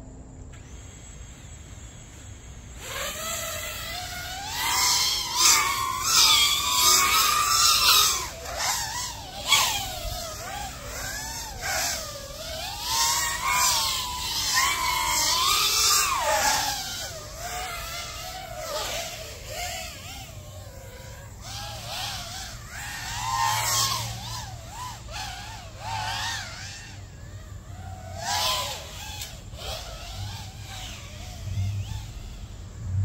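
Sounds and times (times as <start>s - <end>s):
racing drone motors whining: 0.0s - 33.0s.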